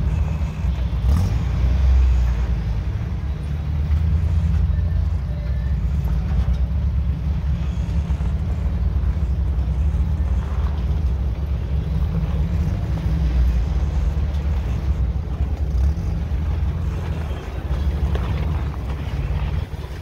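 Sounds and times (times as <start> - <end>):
off-road vehicle engine rumbling: 0.0 - 20.0.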